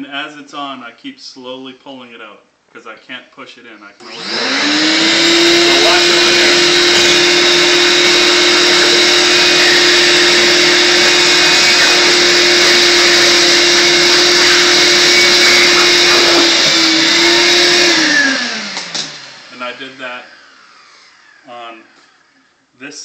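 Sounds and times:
shop vac running with whine: 4.0 - 22.5
hose sucking air: 4.1 - 21.1.

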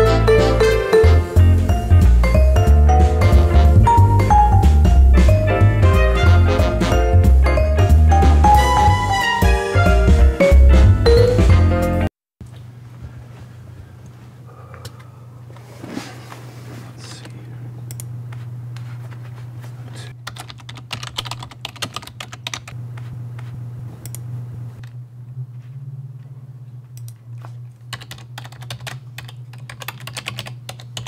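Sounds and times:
steady low hum: 12.4 - 20.3, 22.0 - 31.0.

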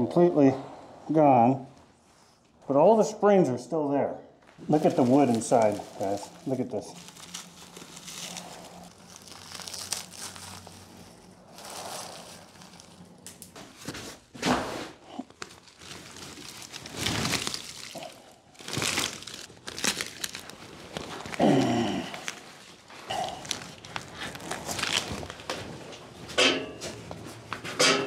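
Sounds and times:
wood crumbling and crackling: 4.6 - 14.0, 15.2 - 26.0
upholstery rustling and tearing: 4.6 - 25.9.

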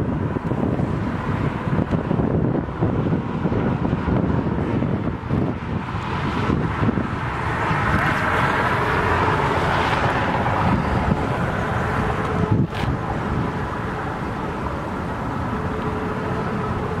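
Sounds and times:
cars passing on highway: 0.0 - 17.0
wind buffeting microphone: 0.0 - 17.0.

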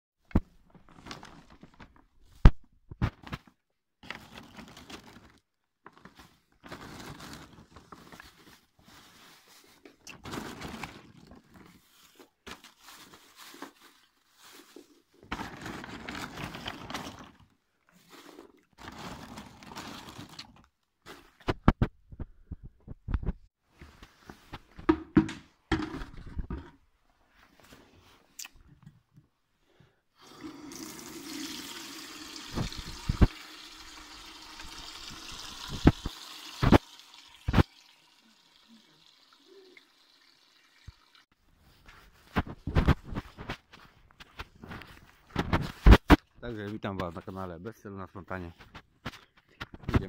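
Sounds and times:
bags rustling and crinkling: 0.5 - 2.4, 3.0 - 21.6, 41.4 - 46.7.

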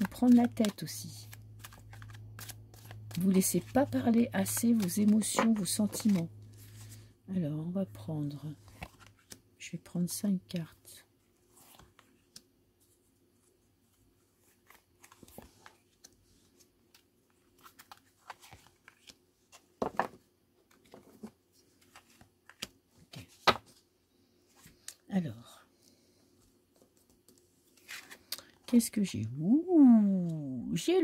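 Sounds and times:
cards being shuffled: 0.0 - 7.0, 14.5 - 23.8.

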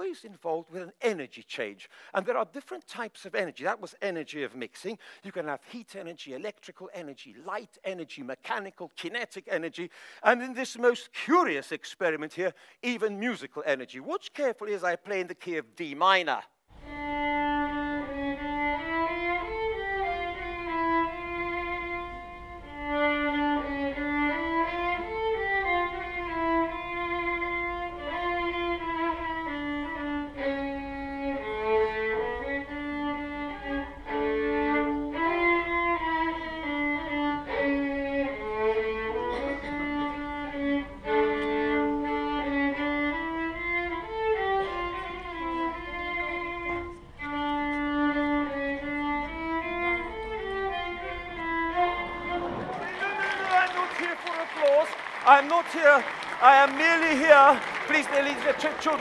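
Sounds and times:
solo violin slow melody: 16.7 - 52.9.

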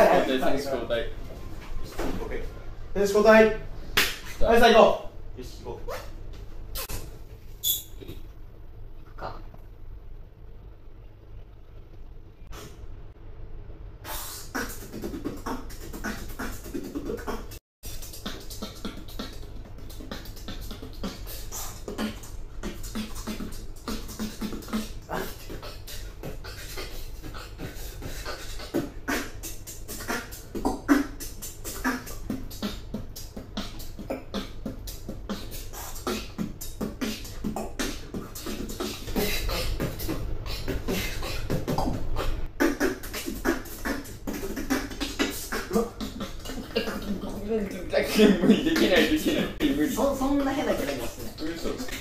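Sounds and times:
person beatboxing: 6.7 - 7.1, 12.5 - 12.8, 14.0 - 52.0.

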